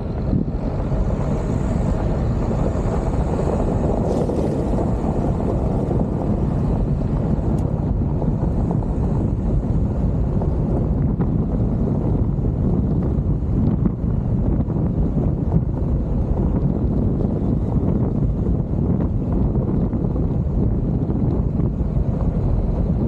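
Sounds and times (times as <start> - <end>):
tyres rumbling on gravel road: 0.0 - 23.0
wind buffeting microphone: 0.0 - 23.0
wind rushing: 0.0 - 23.0.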